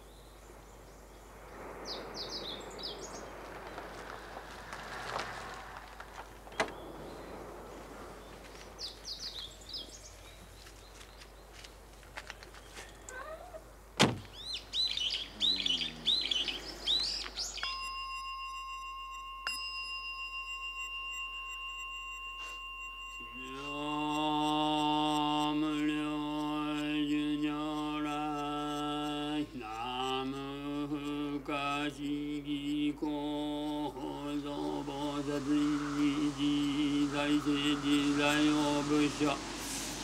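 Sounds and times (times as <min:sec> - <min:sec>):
birds chirping: 0:00.0 - 0:18.0, 0:22.6 - 0:40.0
man chanting low: 0:15.3 - 0:16.4, 0:23.4 - 0:40.0
altar bell ringing: 0:17.6 - 0:24.8.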